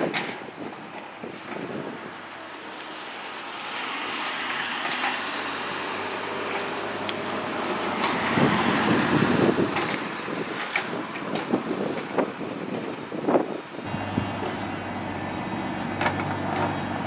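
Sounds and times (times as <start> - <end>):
wind noise on microphone: 0.0 - 2.4, 6.7 - 17.0
excavator engine running: 13.8 - 17.0.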